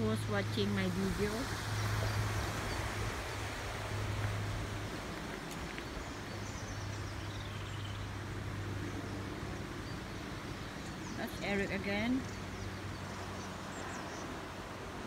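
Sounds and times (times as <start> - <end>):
river rushing over rocks: 0.0 - 11.7.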